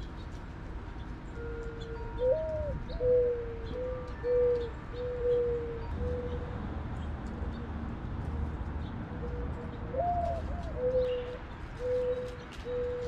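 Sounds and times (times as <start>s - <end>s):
mourning dove cooing: 1.3s - 6.6s, 9.2s - 13.0s.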